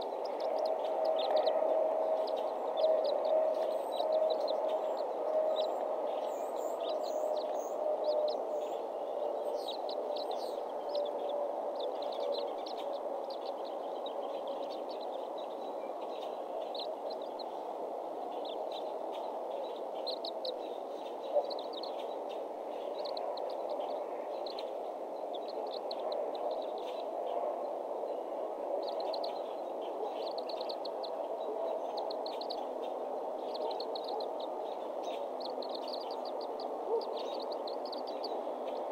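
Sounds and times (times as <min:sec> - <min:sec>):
outdoor background noise: 0:00.0 - 0:38.9.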